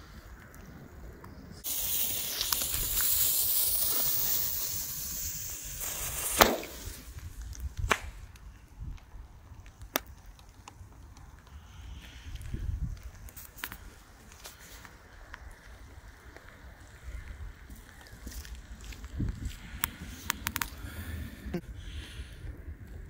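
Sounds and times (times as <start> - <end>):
firework hissing: 1.5 - 7.5
firework bang: 1.6 - 7.2
faint cracks: 5.8 - 21.1.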